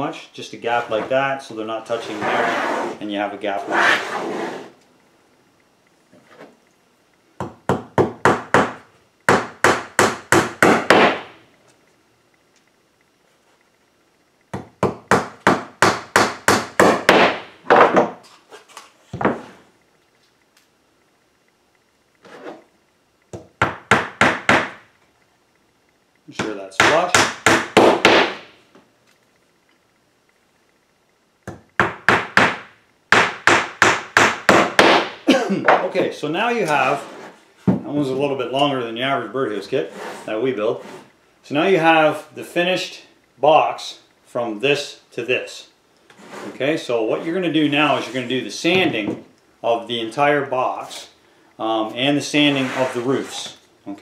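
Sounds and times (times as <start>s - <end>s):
hammer hitting nail into wood: 7.4s - 11.3s, 14.6s - 18.2s, 23.6s - 24.8s, 26.8s - 28.5s, 31.5s - 35.2s.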